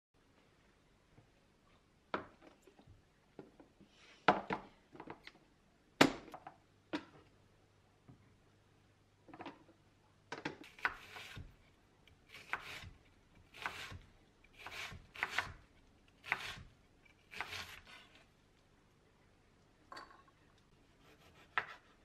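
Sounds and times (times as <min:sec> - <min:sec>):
knife slicing onion on board: 0:10.6 - 0:11.6, 0:12.3 - 0:14.0, 0:14.6 - 0:15.6, 0:16.2 - 0:18.2, 0:21.0 - 0:22.0.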